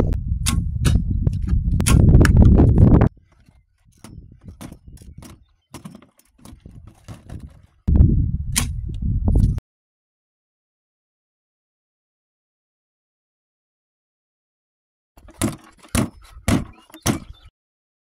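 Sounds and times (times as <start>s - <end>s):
wind buffeting microphone: 0.0s - 5.5s, 6.4s - 9.6s
bowstring snapping: 8.6s - 9.5s.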